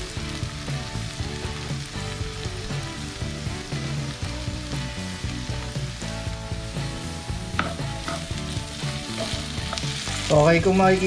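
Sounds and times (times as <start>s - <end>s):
potatoes sizzling in oil: 0.0s - 11.0s
spatula knocking on skillet: 7.5s - 10.1s.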